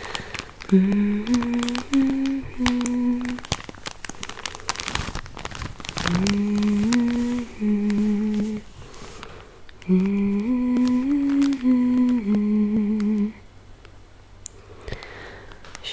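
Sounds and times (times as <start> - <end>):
package crinkling: 0.0 - 13.4
woman humming: 0.7 - 3.5, 6.0 - 8.7, 9.8 - 13.5.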